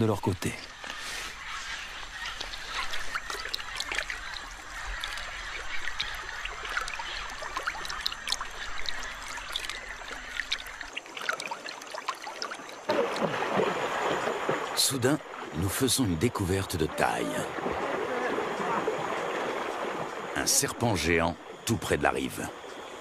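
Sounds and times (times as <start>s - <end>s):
water trickling and splashing: 0.0s - 23.0s
small drips and ticks: 1.9s - 13.3s.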